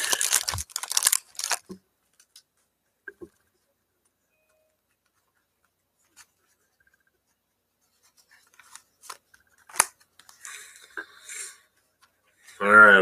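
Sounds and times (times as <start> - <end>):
wrapper crinkling: 0.0 - 1.8.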